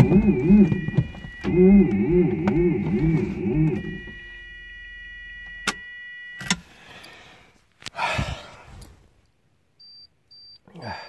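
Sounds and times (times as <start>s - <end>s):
dashboard warning buzzer: 0.0s - 7.2s.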